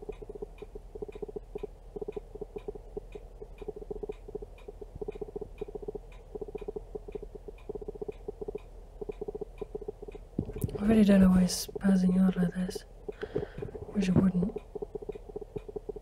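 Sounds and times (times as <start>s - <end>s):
autofocus motor clicking: 0.0s - 11.0s
faint regular tick: 0.0s - 16.0s.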